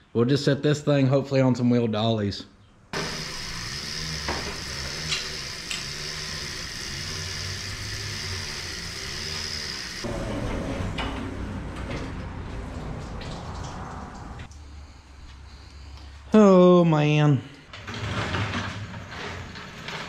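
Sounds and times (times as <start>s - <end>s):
hoist mechanical noise: 3.0s - 11.2s.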